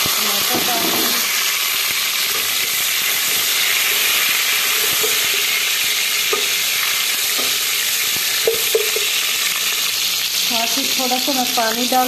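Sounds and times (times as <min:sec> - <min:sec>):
vegetables sizzling in oil: 0:00.0 - 0:12.0
wooden spoon knocking pan: 0:08.4 - 0:09.2.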